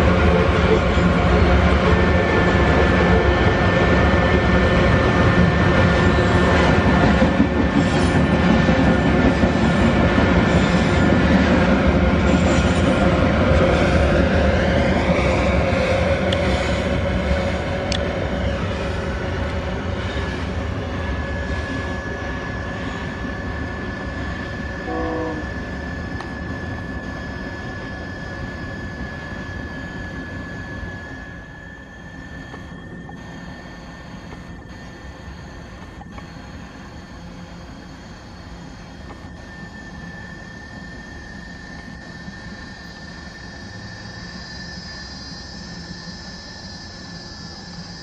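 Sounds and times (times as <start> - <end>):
freight train wagons rumbling: 0.0 - 34.7.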